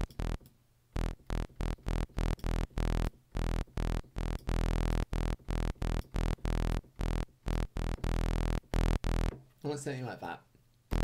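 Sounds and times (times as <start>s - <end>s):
synthesizer bass stabs: 1.0s - 9.3s.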